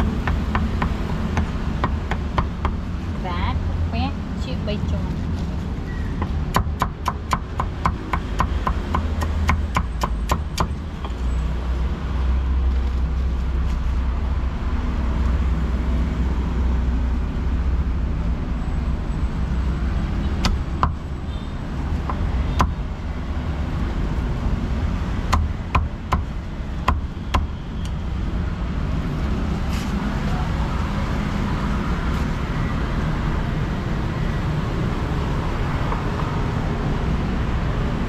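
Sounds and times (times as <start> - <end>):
low rumble of street traffic: 0.0 - 38.0
cleaver chopping meat on wood: 0.2 - 2.8, 6.2 - 10.8, 25.3 - 27.6.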